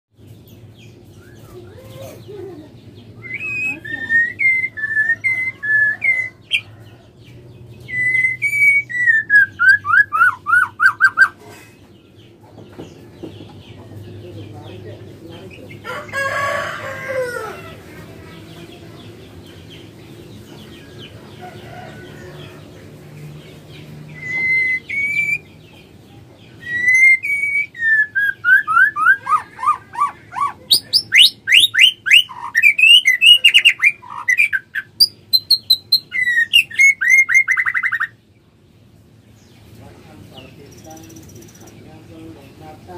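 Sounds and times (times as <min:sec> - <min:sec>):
bird singing whistles and trills: 0:03.2 - 0:06.6, 0:07.8 - 0:11.4, 0:24.1 - 0:25.6, 0:26.5 - 0:29.5, 0:30.8 - 0:38.2.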